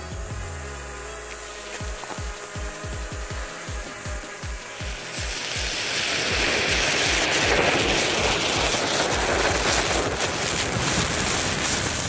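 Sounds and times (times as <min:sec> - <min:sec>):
electronic dance music: 0:00.0 - 0:09.8
loud even rushing noise: 0:02.9 - 0:12.0.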